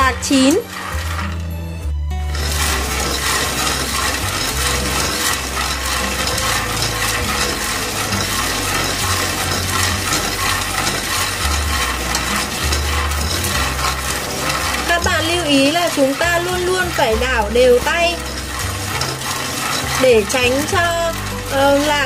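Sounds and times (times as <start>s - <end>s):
peanuts rattling in a pan: 0.0s - 22.0s.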